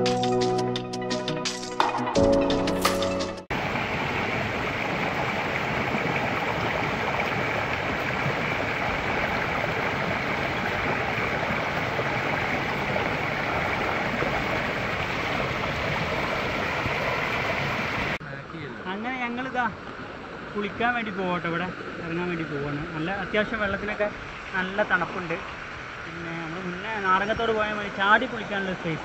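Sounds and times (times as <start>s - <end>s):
river rushing over waterfall: 3.5s - 18.2s.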